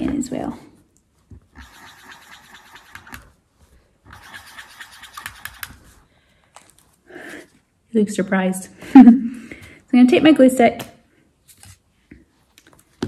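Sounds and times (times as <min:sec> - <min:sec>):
marker pen scratching on paper: 0:01.4 - 0:03.4, 0:04.1 - 0:06.0.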